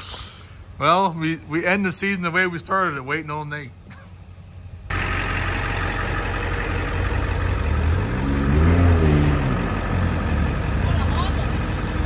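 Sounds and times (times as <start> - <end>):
truck exhaust rumbling: 0.0 - 12.0
engine revving: 4.9 - 12.0.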